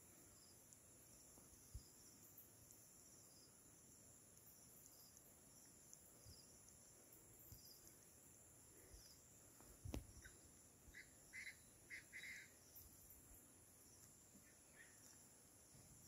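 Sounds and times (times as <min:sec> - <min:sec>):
high insect hiss: 0:00.0 - 0:16.0
short bird calls: 0:10.2 - 0:12.8.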